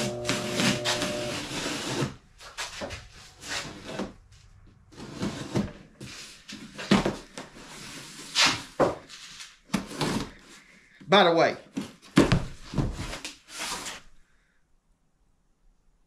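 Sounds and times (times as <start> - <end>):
water pump humming: 0.0 - 1.6
cardboard scraping and knocking: 4.9 - 9.1, 11.7 - 13.9.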